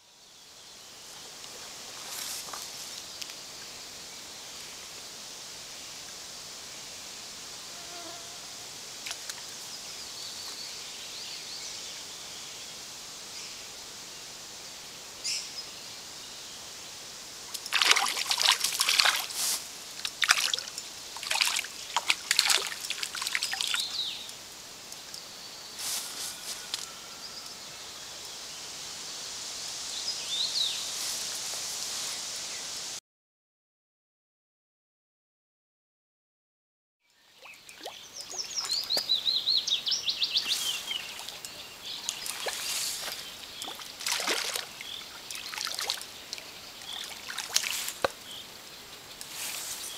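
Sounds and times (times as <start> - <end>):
creek trickling: 8.9 - 10.6, 17.3 - 25.3, 37.2 - 49.9.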